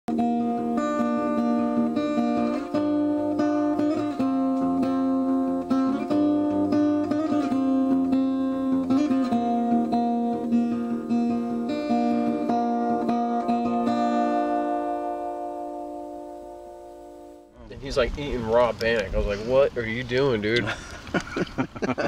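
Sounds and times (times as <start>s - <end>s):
instrumental music with ringing chords: 0.1s - 17.6s.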